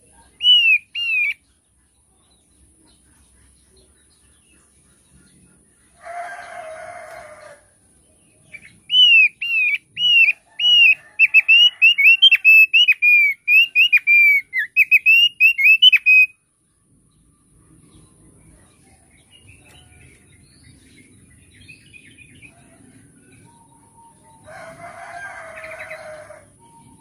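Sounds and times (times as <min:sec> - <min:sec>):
bird singing whistled notes: 0:00.2 - 0:01.4, 0:08.4 - 0:16.4
rooster crowing: 0:06.0 - 0:07.8, 0:10.2 - 0:12.7, 0:23.6 - 0:27.0.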